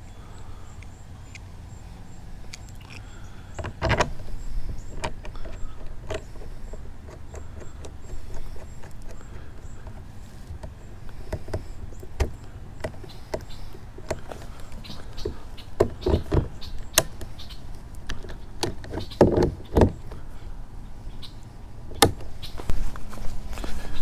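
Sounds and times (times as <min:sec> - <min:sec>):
plastic and metal parts clicking: 0:02.5 - 0:20.2.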